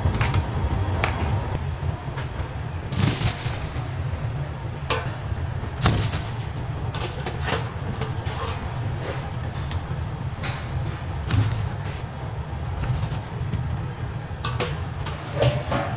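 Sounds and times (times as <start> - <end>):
low hum: 0.0 - 15.9
kitchen pans and utensils clanking: 2.9 - 12.1, 12.8 - 15.9.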